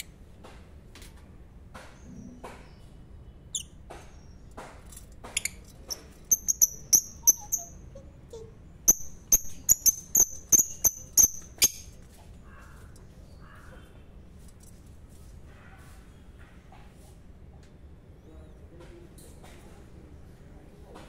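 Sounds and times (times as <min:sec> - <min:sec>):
lovebirds chirping: 0:01.8 - 0:14.0.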